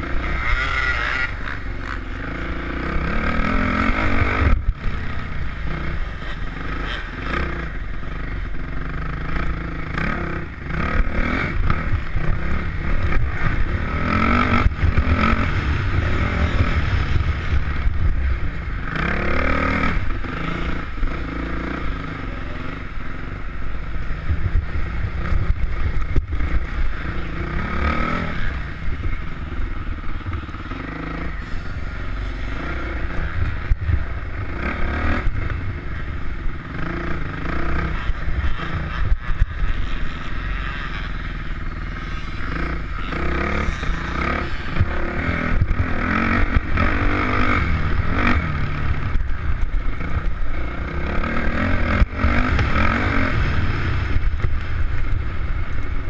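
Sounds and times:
dirt bike engine revving: 0:00.0 - 0:56.0
wind rumble on microphone: 0:22.8 - 0:30.5, 0:31.2 - 0:41.4, 0:42.2 - 0:56.0.

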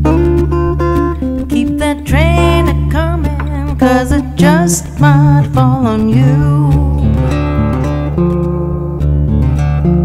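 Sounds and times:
acoustic guitar: 0:00.0 - 0:10.0
woman singing blues: 0:00.7 - 0:07.5.

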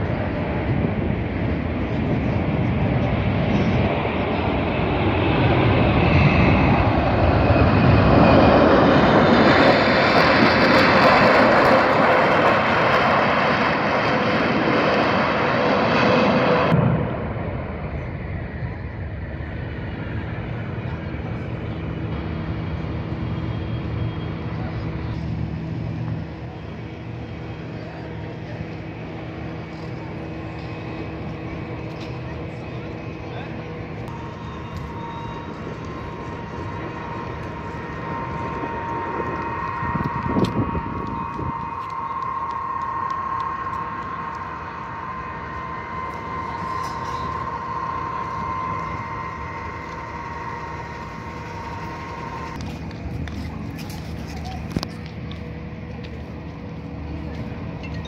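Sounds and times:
aircraft turbine whine: 0:00.0 - 0:58.0
low hum tones: 0:00.0 - 0:58.0
machine mechanical drone: 0:00.0 - 0:58.0
constant rushing background: 0:17.9 - 0:58.0
broad hubbub: 0:20.6 - 0:58.0.

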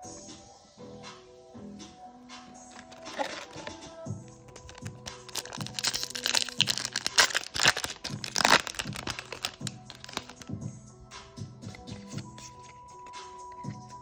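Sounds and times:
background music: 0:00.0 - 0:14.0
foil wrapper crinkling and tearing: 0:02.7 - 0:10.5.

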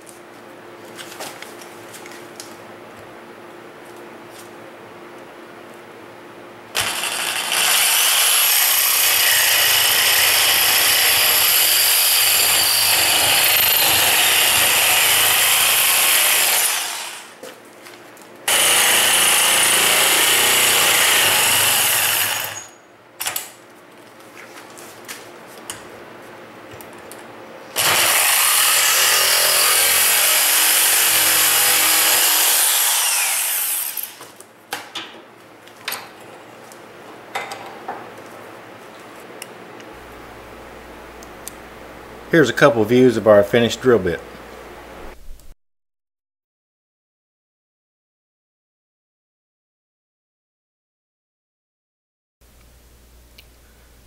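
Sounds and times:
electric jigsaw cutting metal pipe: 0:06.7 - 0:17.4, 0:18.5 - 0:23.4, 0:27.7 - 0:34.2.

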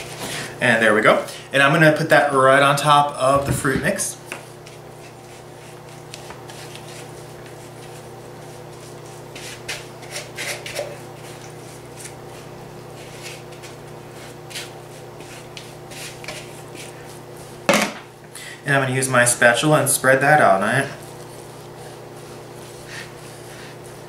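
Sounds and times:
steady low hum: 0:00.0 - 0:24.0
spatula scraping plastic bowl: 0:03.4 - 0:17.7, 0:20.4 - 0:24.0.

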